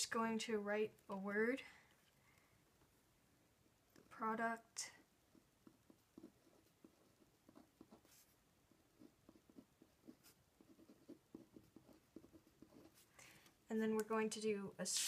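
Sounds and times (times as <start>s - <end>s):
pen writing on paper: 5.3s - 13.1s.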